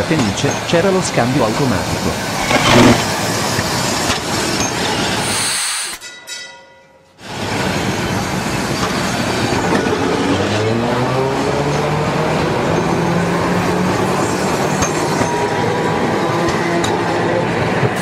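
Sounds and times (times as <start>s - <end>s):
tram wheels rumbling on rails: 7.3s - 18.0s.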